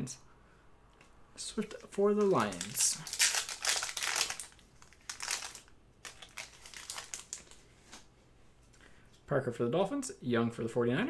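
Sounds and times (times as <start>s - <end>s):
foil wrapper crinkling: 1.6s - 8.1s.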